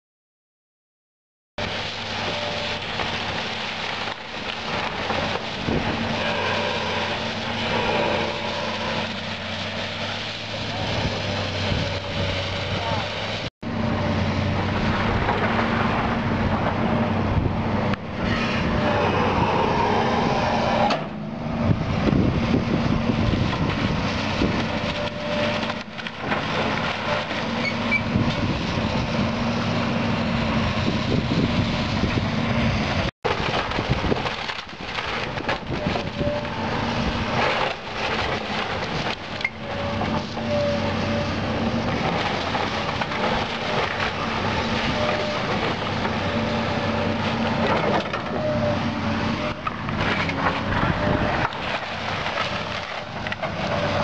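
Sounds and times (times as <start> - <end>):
diesel engines running: 1.6 - 54.0
wood and debris cracking and crashing: 2.1 - 10.4, 14.7 - 16.9, 23.4 - 28.5, 33.3 - 54.0.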